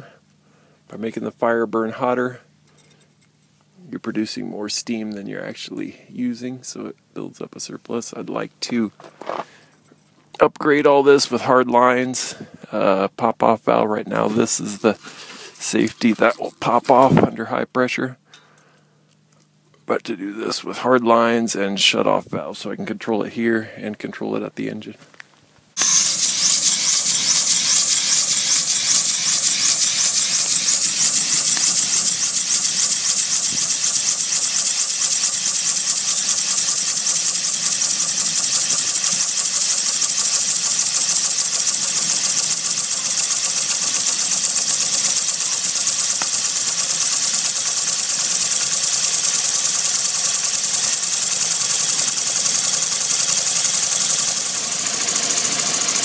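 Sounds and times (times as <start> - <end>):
model steam engine hissing and beating: 14.1 - 17.2, 25.8 - 56.0.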